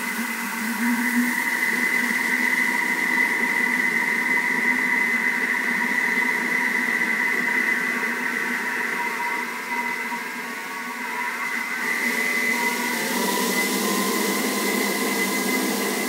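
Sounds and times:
kitchen machine motor whining: 11.1 - 16.0.

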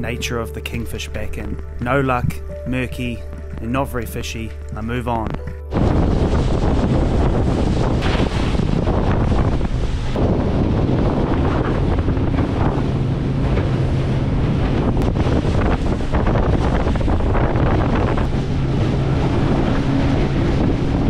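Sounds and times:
low engine hum: 0.0 - 21.0
water rushing along hull: 0.0 - 21.0
wind buffeting microphone: 4.6 - 21.0.

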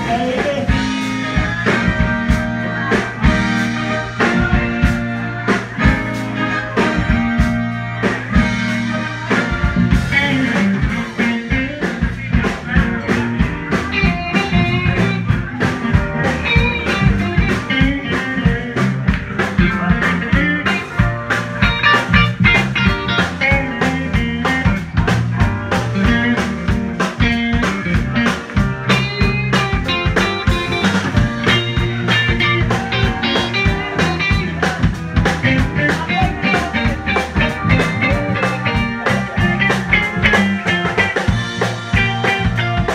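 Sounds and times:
bass guitar: 0.0 - 42.9
electric guitar: 0.0 - 42.9
keyboard: 0.0 - 42.9
steady drum beat: 0.0 - 42.9.

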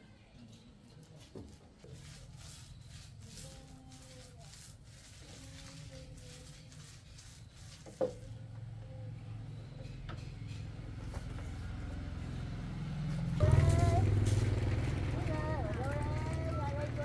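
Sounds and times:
vehicle engine rumble: 8.1 - 17.0.

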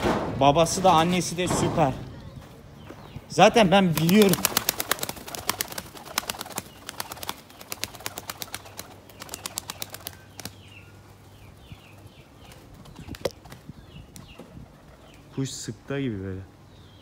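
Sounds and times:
small birds chirping: 0.8 - 17.0
pigeon wing clicks: 3.9 - 10.6, 12.5 - 14.4.

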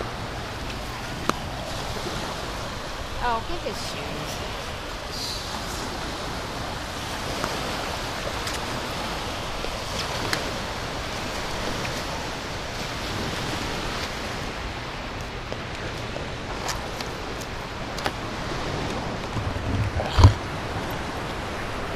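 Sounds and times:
surf washing onto sand: 0.0 - 21.9.

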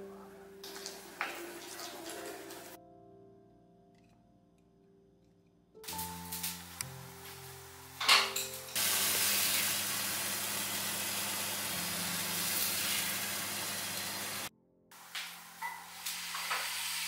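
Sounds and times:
vegetables sizzling in oil: 8.7 - 17.0.

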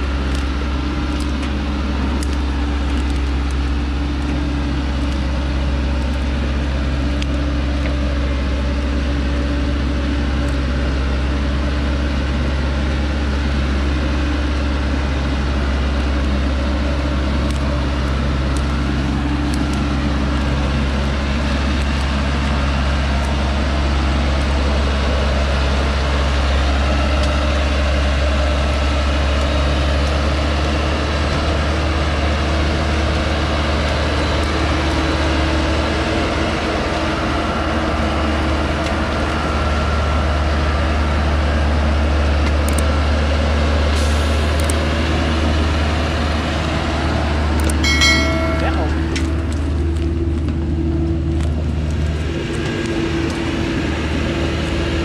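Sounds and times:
truck engine running under load: 0.0 - 55.0.

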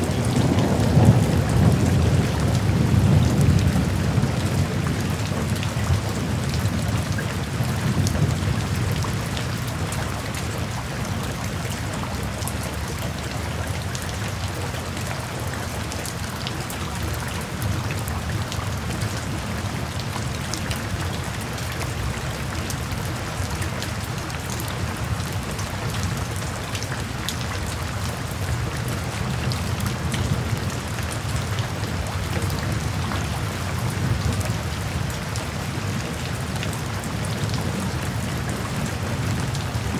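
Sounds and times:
rain pattering: 0.0 - 39.9.

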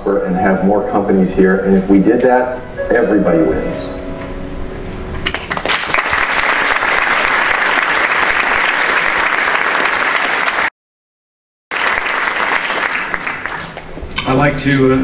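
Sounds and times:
audience applauding: 5.3 - 10.7, 11.7 - 14.0.

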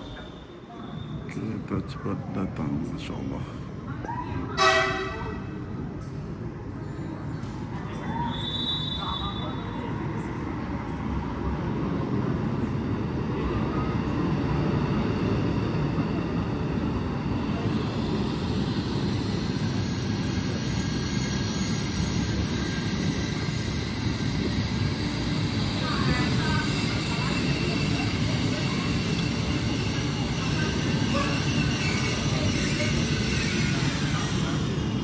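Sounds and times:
electric train pulling in: 9.5 - 35.0.

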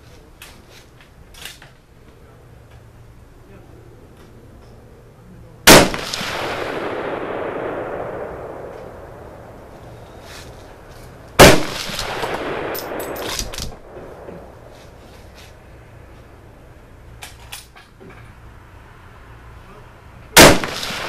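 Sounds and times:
rifle shots: 5.7 - 9.4, 11.4 - 14.3, 20.4 - 21.0
long rolling echo: 5.7 - 17.1, 20.4 - 21.0.

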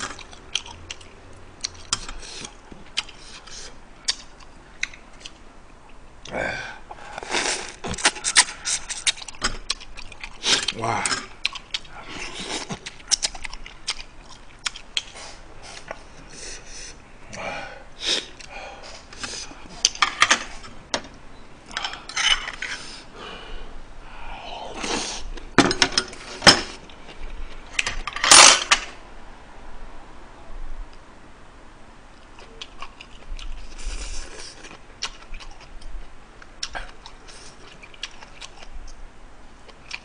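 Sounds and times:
chewing and mouth smacks: 7.8 - 10.8, 11.4 - 15.2, 32.2 - 39.0.

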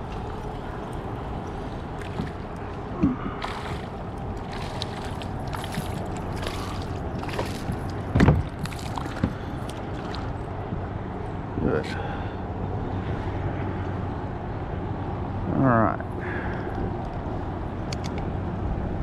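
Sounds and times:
water splashing: 0.0 - 10.4.

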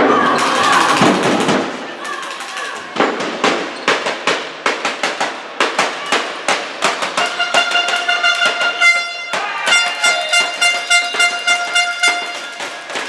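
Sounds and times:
sharp bangs ringing: 3.0 - 13.0
held horn-like tone: 7.2 - 12.6.

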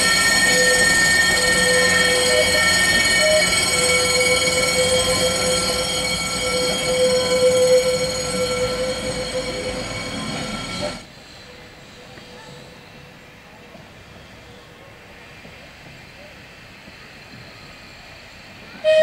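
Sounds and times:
tram running gear noise: 0.0 - 12.6
tram wheels squealing: 0.0 - 13.0, 14.0 - 19.0.

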